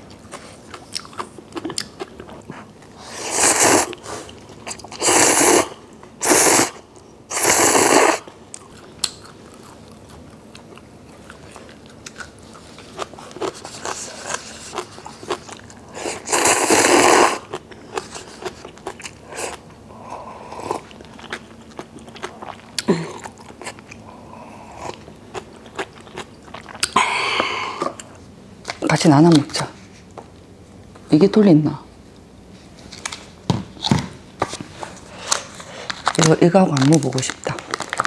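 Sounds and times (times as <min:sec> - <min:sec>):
chewing and crunching: 0:00.0 - 0:03.0, 0:08.3 - 0:16.3, 0:17.4 - 0:19.7, 0:20.7 - 0:27.0, 0:34.5 - 0:38.0
loud slurping of noodles: 0:03.0 - 0:04.3, 0:04.9 - 0:08.3, 0:15.9 - 0:17.5.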